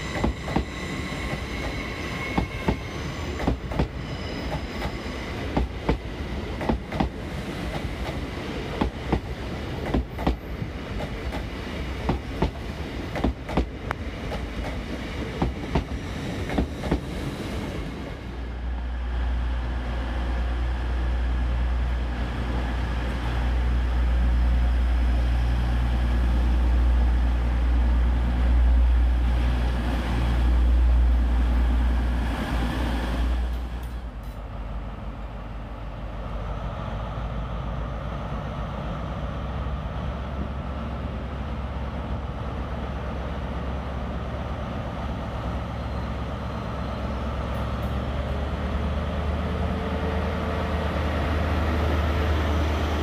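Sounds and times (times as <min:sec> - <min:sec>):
diesel train engine rumble: 0:00.0 - 0:53.0
train wheels clicking over rail joints: 0:03.4 - 0:17.2.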